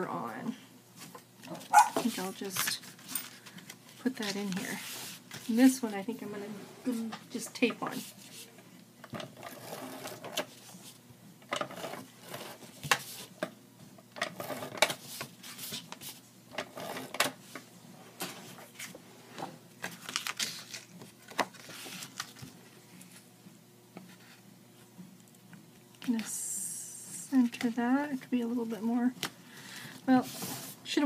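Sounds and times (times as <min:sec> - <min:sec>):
tape handling: 0:19.8 - 0:22.5
paper rustling: 0:19.8 - 0:23.2.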